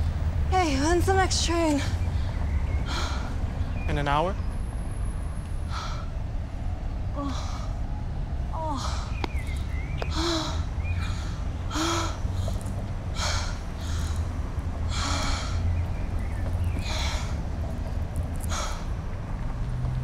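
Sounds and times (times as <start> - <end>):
woman breathing hard: 2.1 - 3.8, 5.6 - 6.3, 7.2 - 8.0, 8.6 - 9.2, 10.1 - 15.8, 16.7 - 17.6, 18.4 - 19.0.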